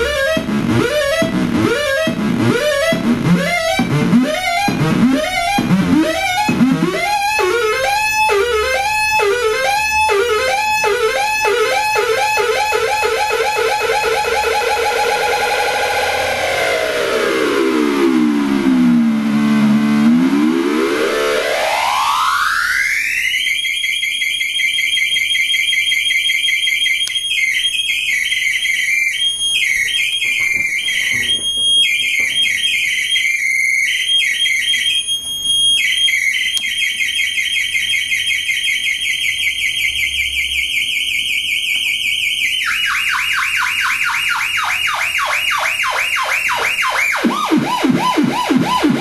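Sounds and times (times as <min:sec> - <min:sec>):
falling synthesizer chirps: 0:00.0 - 0:23.3
synthesizer warbling tone: 0:00.0 - 0:23.3, 0:44.6 - 0:49.0.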